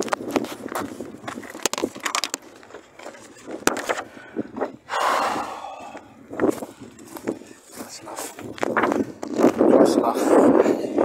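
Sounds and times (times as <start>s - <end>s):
footsteps on gravel and grass: 5.2s - 10.4s.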